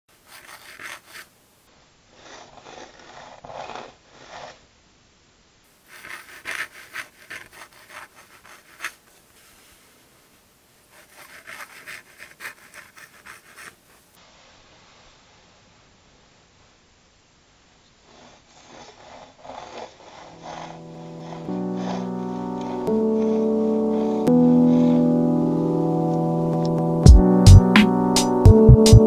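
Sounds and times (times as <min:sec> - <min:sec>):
dip pen scratching on paper: 0:00.1 - 0:01.3, 0:02.1 - 0:04.6, 0:05.8 - 0:09.7, 0:10.9 - 0:14.1, 0:18.1 - 0:25.1.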